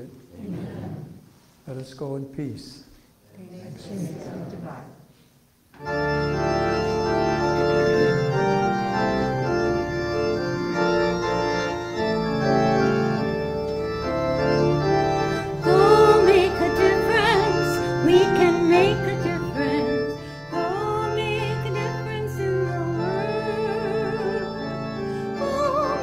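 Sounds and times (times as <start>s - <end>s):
church organ chords: 5.8s - 26.0s
voices singing: 15.4s - 24.6s, 25.3s - 26.0s.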